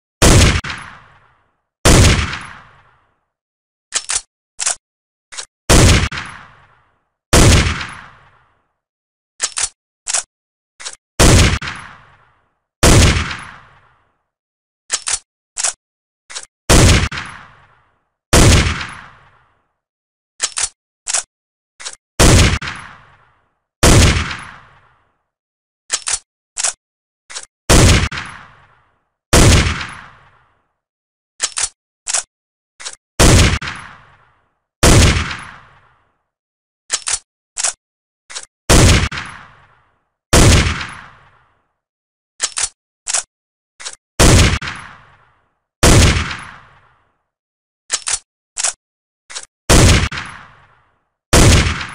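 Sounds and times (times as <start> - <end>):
gunshots with echo: 0.2 - 3.1, 5.7 - 8.6, 11.2 - 13.9, 16.7 - 17.8, 18.4 - 19.4, 22.2 - 24.9, 27.7 - 28.7, 29.4 - 30.3, 33.2 - 35.8, 38.7 - 39.7, 40.4 - 41.3, 44.2 - 45.2, 45.8 - 46.8, 49.7 - 50.7, 51.4 - 51.9
gun action clicks: 3.9 - 5.5, 9.4 - 11.0, 14.9 - 16.5, 20.4 - 22.0, 25.9 - 27.5, 31.4 - 33.9, 36.9 - 38.5, 42.4 - 44.0, 47.9 - 49.5.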